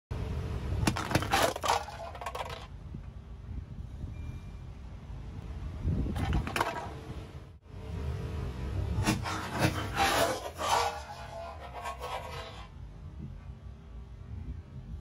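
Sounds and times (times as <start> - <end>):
tin cans crunching under tyre: 0.9 - 2.7
car rolling rumble: 4.9 - 15.0.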